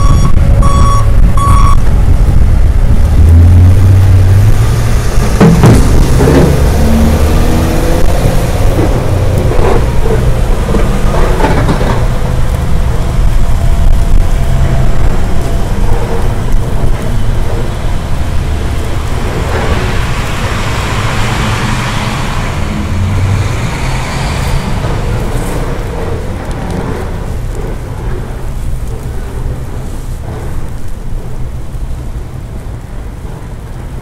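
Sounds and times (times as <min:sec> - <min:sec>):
low traffic rumble: 0:00.0 - 0:34.0
car tyre hiss passing: 0:18.4 - 0:27.2.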